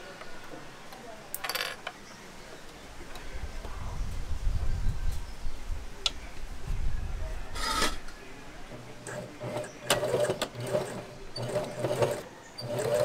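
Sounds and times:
sewing machine stitching: 9.0s - 13.0s.

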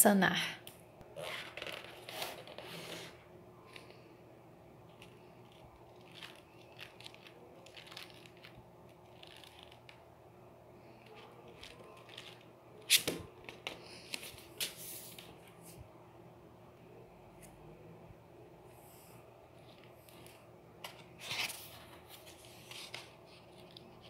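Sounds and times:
book pages rustling and flapping: 1.2s - 4.1s, 4.8s - 10.0s, 10.8s - 15.8s, 19.5s - 24.0s.

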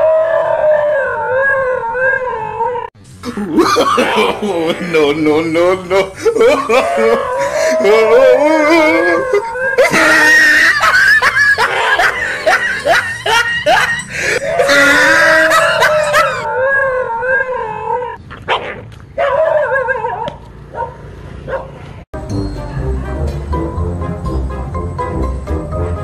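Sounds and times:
dog howling and whining: 0.0s - 2.9s, 6.6s - 10.8s, 13.3s - 18.2s
dog barking in yips: 18.4s - 21.8s.

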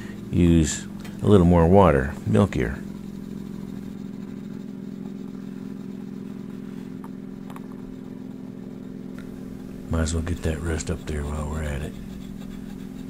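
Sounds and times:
low machine hum: 0.0s - 13.0s.

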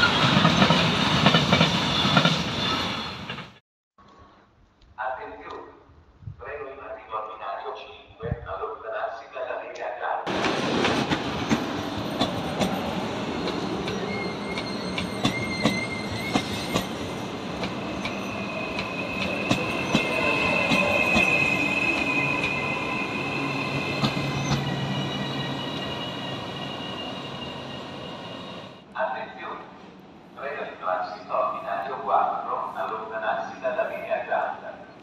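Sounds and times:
train wheels squealing: 0.0s - 3.5s, 11.9s - 28.8s.

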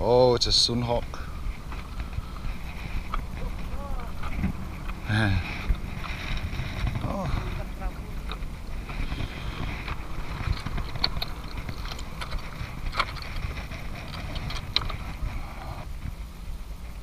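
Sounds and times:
wind rumbling on microphone: 0.0s - 17.0s
boots stepping over loose rocks: 8.2s - 15.6s.

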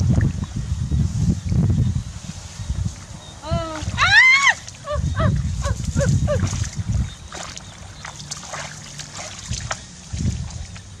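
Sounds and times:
hands splashing in muddy water: 5.8s - 10.9s.

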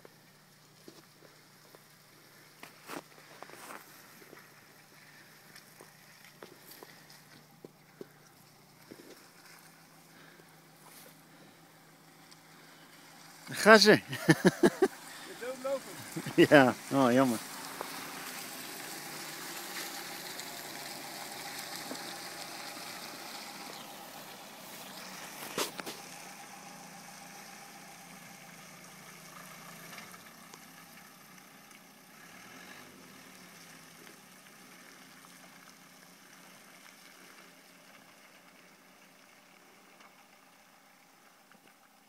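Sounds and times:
diesel car engine driving away: 0.0s - 42.0s.

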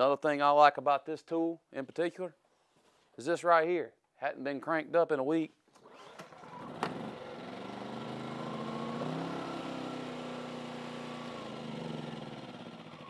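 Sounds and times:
portable generator engine running: 5.8s - 13.0s.

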